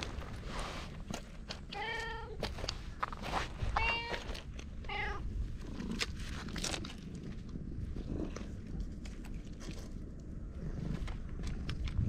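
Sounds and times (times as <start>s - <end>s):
cat meowing: 3.7s - 5.3s.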